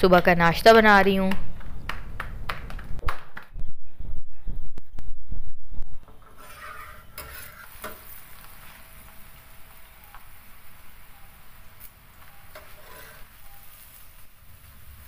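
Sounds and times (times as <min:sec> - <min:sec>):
metal spatula scraping griddle: 0:06.0 - 0:09.3, 0:12.2 - 0:14.8
flatbread sizzling on griddle: 0:06.2 - 0:15.0.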